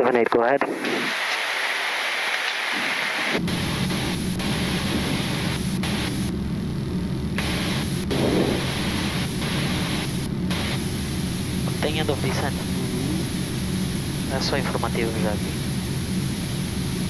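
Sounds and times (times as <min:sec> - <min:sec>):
rushing air noise: 0:00.7 - 0:17.0
low hum: 0:03.4 - 0:17.0.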